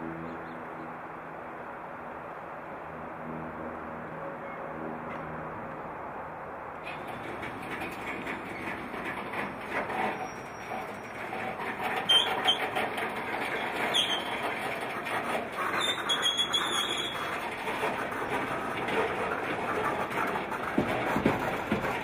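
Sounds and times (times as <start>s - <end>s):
train wheels rumbling and clattering: 6.8s - 22.0s
wheel squeals: 6.8s - 22.0s.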